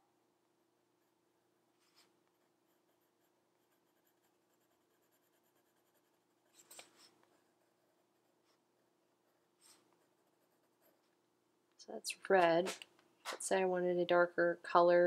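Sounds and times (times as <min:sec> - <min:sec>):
pencil scratching on paper: 0:01.8 - 0:11.2.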